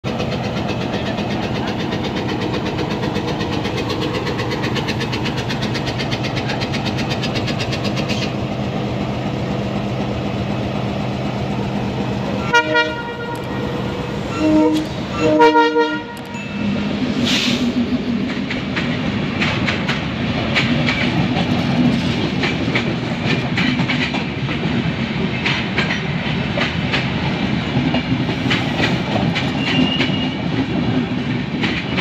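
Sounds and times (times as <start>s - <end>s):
locomotive engine droning: 0.0s - 22.8s
locomotive horn blasts: 12.4s - 16.4s.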